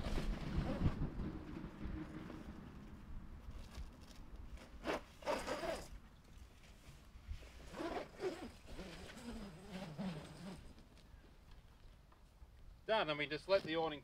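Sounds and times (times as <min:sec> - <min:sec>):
zipper pulled on canvas: 0:00.0 - 0:01.4, 0:04.6 - 0:06.0, 0:07.4 - 0:10.8.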